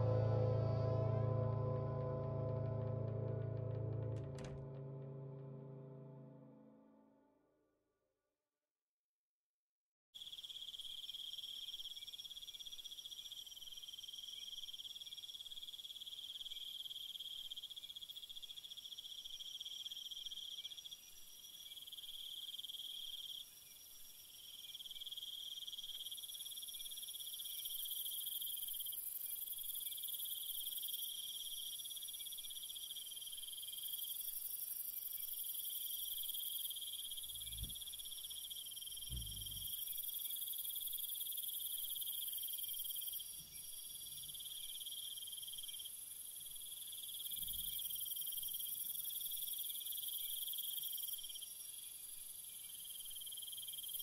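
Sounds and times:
low thud: 0:00.0 - 0:06.2
chirring insect chorus: 0:10.2 - 0:54.0.

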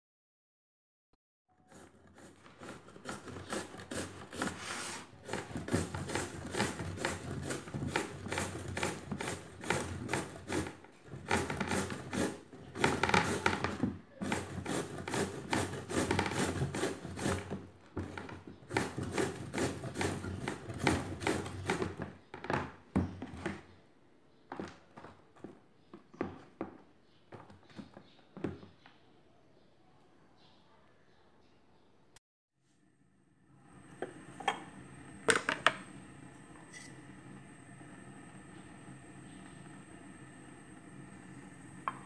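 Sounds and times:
gourd rasping on metal grater: 0:01.6 - 0:17.6, 0:18.2 - 0:22.0.

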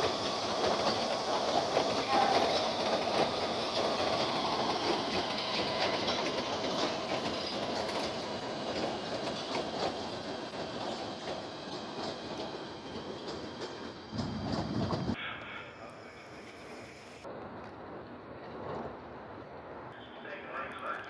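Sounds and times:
train wheels clicking over rail joints: 0:00.0 - 0:15.2.

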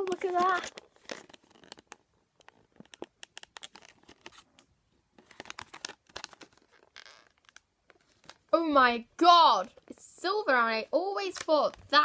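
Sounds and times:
plastic packaging crinkling: 0:00.0 - 0:08.6, 0:11.0 - 0:12.0.

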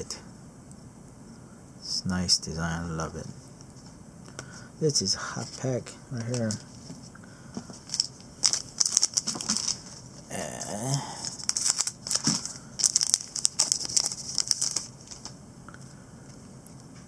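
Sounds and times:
card pack wrapper crinkling: 0:05.4 - 0:06.9, 0:07.8 - 0:15.4.

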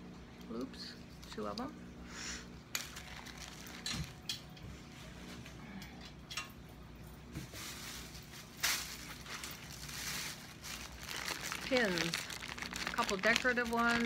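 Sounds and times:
plastic bag crinkling: 0:02.7 - 0:04.3, 0:07.6 - 0:14.0.

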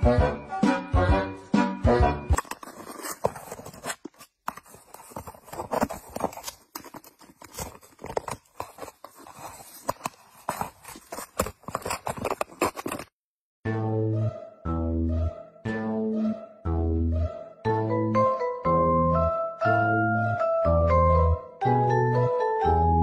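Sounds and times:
cat scratching and tearing paper: 0:02.4 - 0:13.1.

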